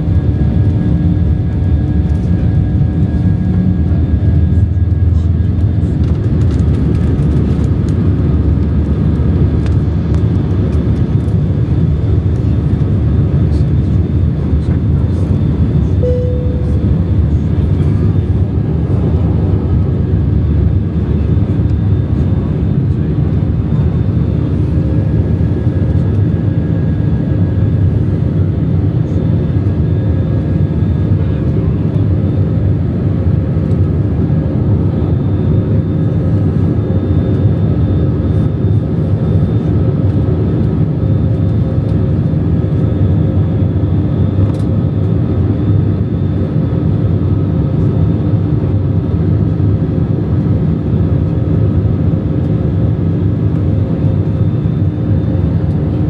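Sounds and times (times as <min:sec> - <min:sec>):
airplane cabin engine drone: 0:00.0 - 0:56.0
faint steady tones: 0:16.0 - 0:16.9.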